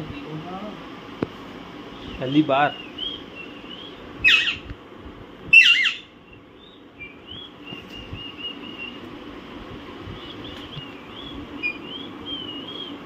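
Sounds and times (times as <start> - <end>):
parakeet high chirps: 2.7 - 4.7, 5.5 - 9.0
parakeet squawks: 3.0 - 4.7, 5.5 - 6.1.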